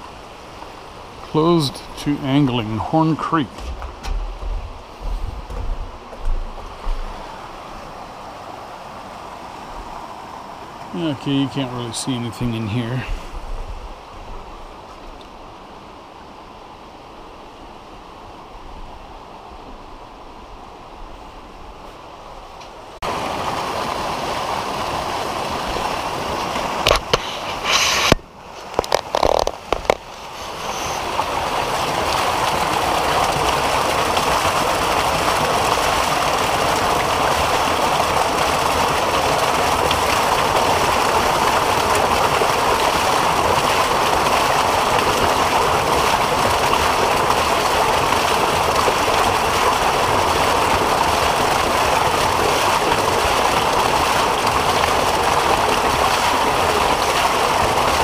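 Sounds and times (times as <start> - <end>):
water gushing from pipe: 23.0 - 58.0.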